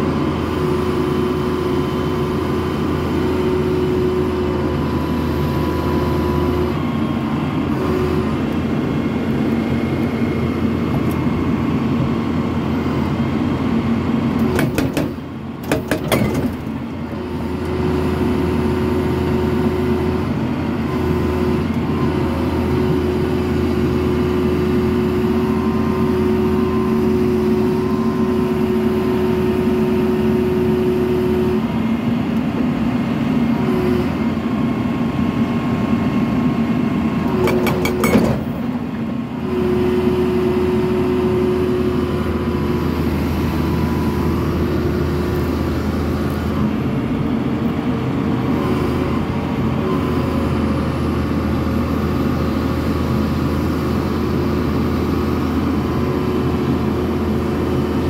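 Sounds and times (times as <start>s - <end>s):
diesel engine under load: 0.0s - 58.0s
steady hydraulic whine: 0.0s - 58.0s
sharp knocks: 14.4s - 16.6s
hydraulic hammer pounding rock: 14.4s - 16.7s, 37.3s - 38.6s.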